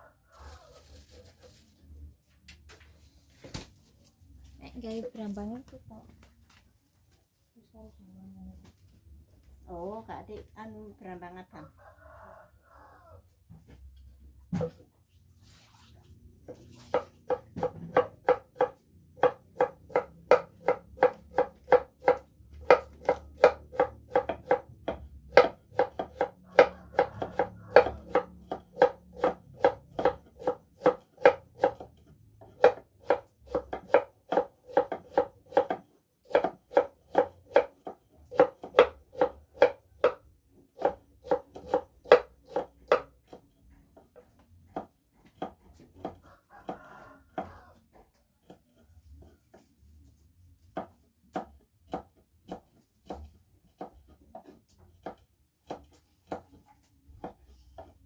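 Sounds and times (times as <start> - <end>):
knife chopping on wooden board: 16.5 - 47.6, 50.6 - 58.0.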